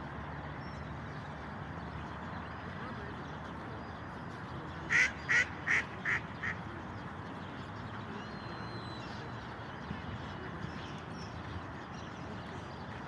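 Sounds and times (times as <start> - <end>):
duck quacking: 4.9 - 6.6.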